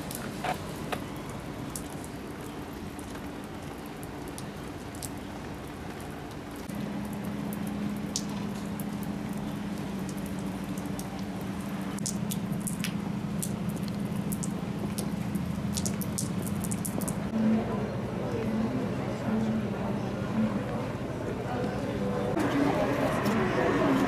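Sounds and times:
water drips: 0:00.0 - 0:17.4
rain pattering on a wet street: 0:00.0 - 0:19.0.

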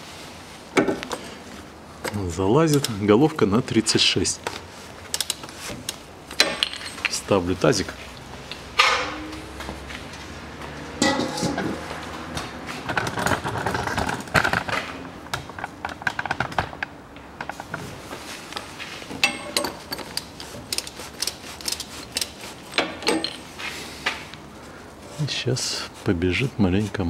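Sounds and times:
metal tools clattering and scraping: 0:06.4 - 0:07.5, 0:08.7 - 0:09.5, 0:11.0 - 0:12.1, 0:12.8 - 0:14.8, 0:19.0 - 0:23.8
ratchet clicking: 0:20.0 - 0:22.5.

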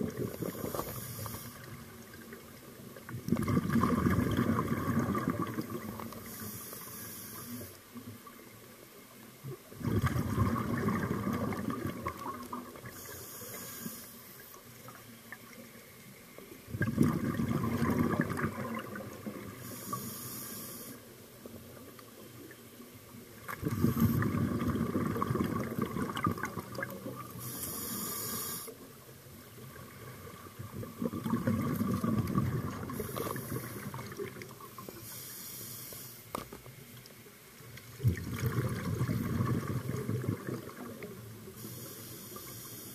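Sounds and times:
regulator inhale hiss: 0:00.1 - 0:02.0, 0:06.1 - 0:08.0, 0:12.8 - 0:14.8, 0:19.5 - 0:21.2, 0:23.7 - 0:24.4, 0:27.3 - 0:29.0, 0:32.9 - 0:36.4, 0:41.4 - 0:42.9
exhaled bubbles rushing: 0:03.1 - 0:06.1, 0:09.7 - 0:12.9, 0:16.7 - 0:19.6, 0:23.4 - 0:27.4, 0:29.7 - 0:34.7, 0:38.0 - 0:41.3.

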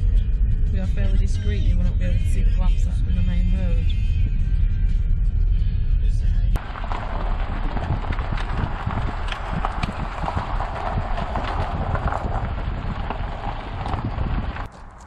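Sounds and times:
footsteps crunching on gravel: 0:06.6 - 0:15.0.

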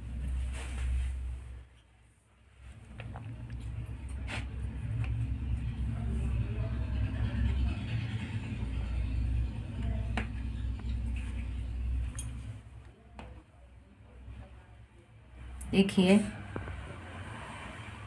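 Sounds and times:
low rumble: 0:02.6 - 0:12.8.

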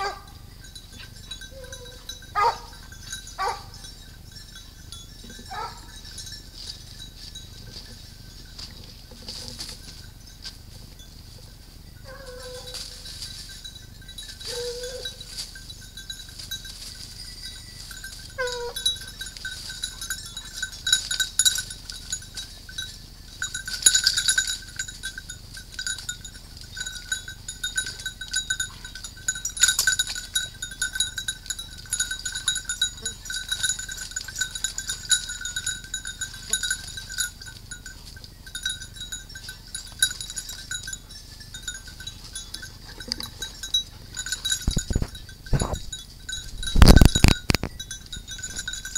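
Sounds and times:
dog collar bells jingling: 0:00.0 - 0:48.9
dog whining: 0:12.0 - 0:13.0, 0:14.5 - 0:15.2, 0:18.4 - 0:19.0.

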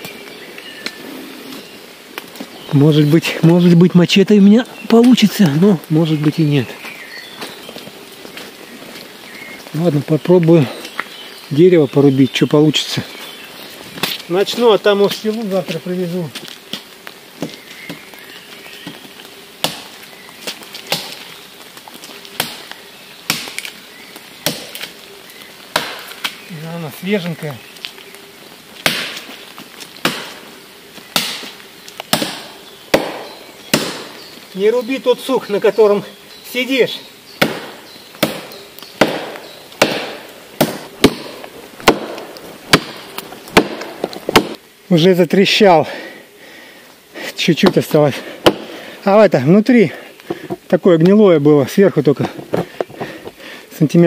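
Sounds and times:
machete chopping tree trunk: 0:19.6 - 0:20.0, 0:20.8 - 0:21.3, 0:22.3 - 0:23.7, 0:24.4 - 0:24.9, 0:25.7 - 0:26.4, 0:28.8 - 0:29.3, 0:30.0 - 0:30.4, 0:31.1 - 0:34.2, 0:37.4 - 0:44.6, 0:48.4 - 0:48.8.

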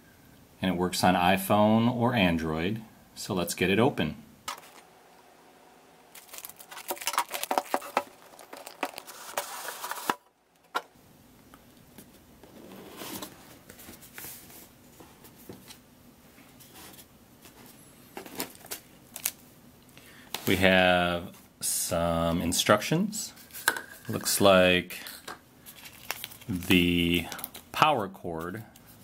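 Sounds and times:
plastic crinkling and tearing: 0:06.1 - 0:10.3, 0:18.2 - 0:19.4, 0:25.7 - 0:27.7
cardboard box rustling: 0:06.2 - 0:10.8.

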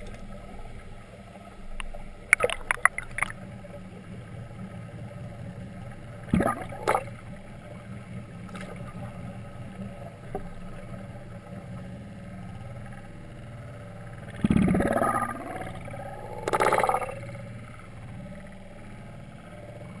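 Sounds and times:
low underwater hum: 0:00.0 - 0:20.0
splashing and bubbling: 0:01.8 - 0:03.8, 0:06.3 - 0:07.3, 0:08.4 - 0:09.1, 0:14.2 - 0:17.3.

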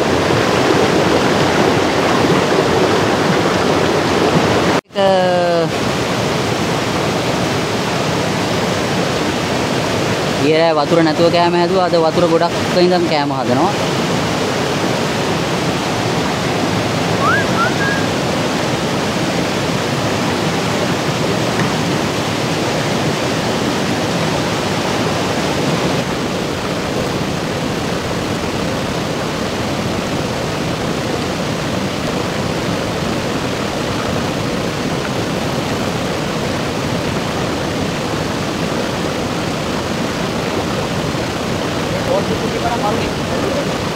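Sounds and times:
water rushing over rocks: 0:00.0 - 0:43.9
short rising whistle: 0:17.2 - 0:18.2.

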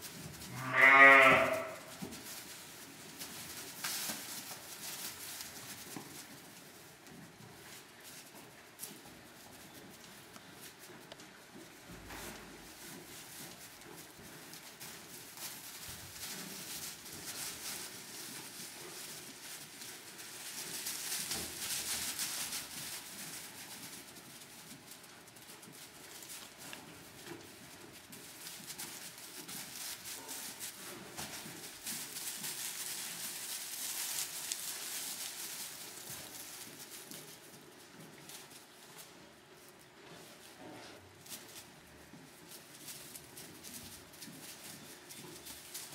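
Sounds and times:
small hooves shuffling through straw: 0:00.0 - 0:45.9.

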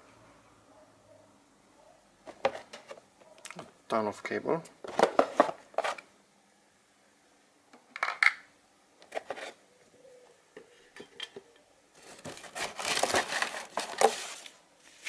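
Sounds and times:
cable and box knocks and rustles: 0:02.3 - 0:03.0, 0:04.8 - 0:06.0
cardboard scraping rustle: 0:12.0 - 0:15.0.

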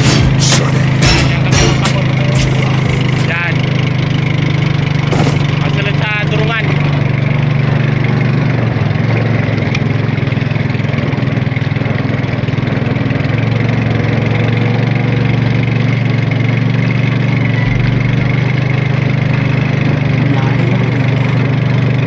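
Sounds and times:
boat engine droning: 0:00.0 - 0:22.0.

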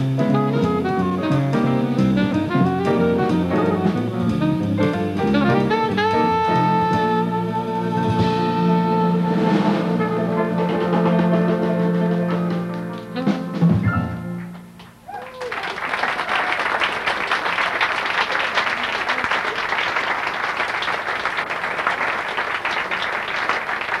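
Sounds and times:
jazz band final chord: 0:00.0 - 0:14.7
audience applauding: 0:14.8 - 0:24.0.

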